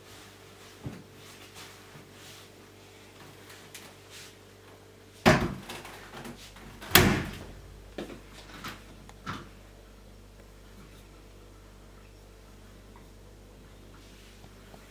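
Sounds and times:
washing machine door slamming: 0:05.3 - 0:05.8, 0:06.8 - 0:07.8.

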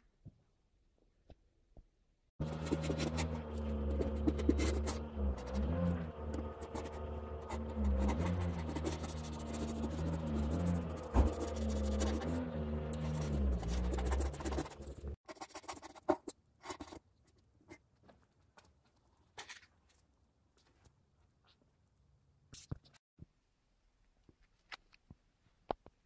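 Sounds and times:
low droning tone: 0:02.4 - 0:15.2
utility knife cutting carpet: 0:02.4 - 0:15.2.

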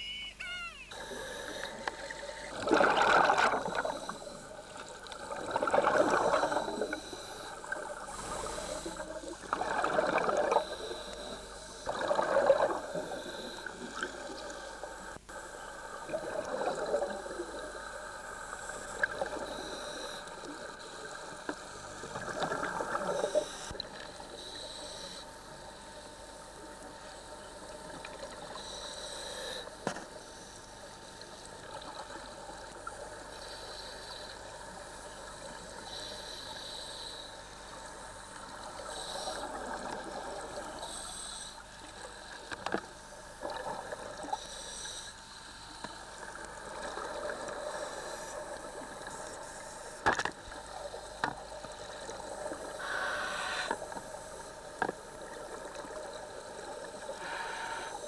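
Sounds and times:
steady hiss: 0:00.0 - 0:09.6, 0:10.4 - 0:58.0
scuba regulator bubbles gurgling: 0:01.0 - 0:24.9, 0:38.1 - 0:44.4, 0:46.0 - 0:49.8.

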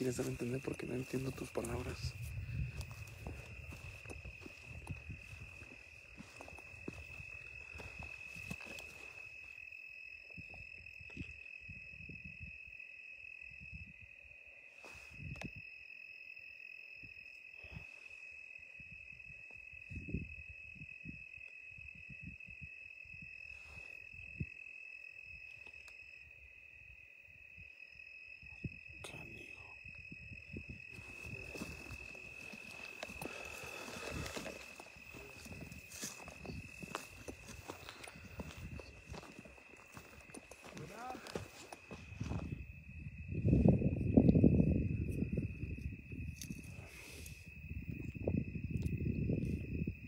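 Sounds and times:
footsteps on rocky dirt trail: 0:00.0 - 0:09.4, 0:31.0 - 0:42.7
insect trill: 0:00.0 - 0:50.0.

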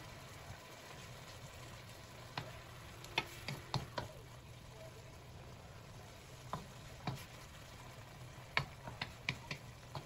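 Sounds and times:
meat sizzling in a wok: 0:00.0 - 0:10.0
wooden spatula tapping wok: 0:02.3 - 0:04.2, 0:06.4 - 0:07.4, 0:08.3 - 0:10.0.

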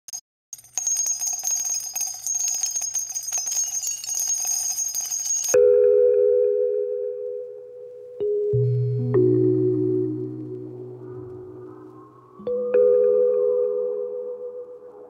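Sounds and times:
bell-like chimes and jingles: 0:00.6 - 0:05.6
held keyboard chord: 0:05.6 - 0:15.0.

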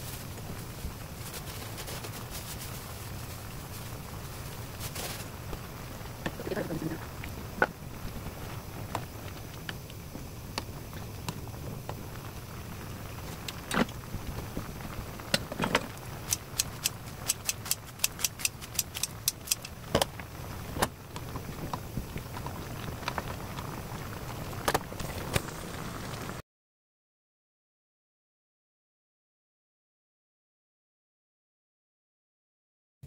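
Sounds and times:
soup boiling in a pan: 0:00.0 - 0:26.4
sharp pops and ticks: 0:13.2 - 0:14.5, 0:15.3 - 0:20.2.

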